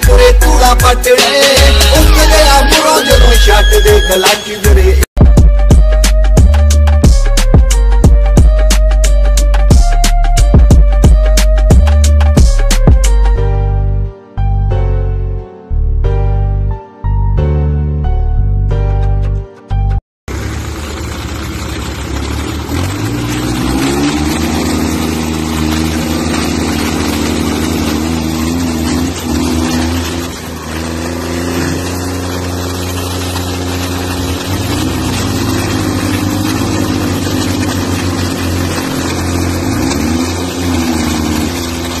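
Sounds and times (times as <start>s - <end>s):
diesel tractor engines revving: 20.3s - 42.0s.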